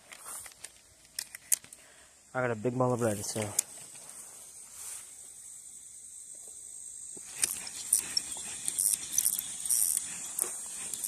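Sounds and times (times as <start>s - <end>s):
fishing rod rustling and clicking: 0.0s - 1.8s, 3.3s - 4.2s, 7.2s - 11.0s
high insect buzz: 0.2s - 11.0s.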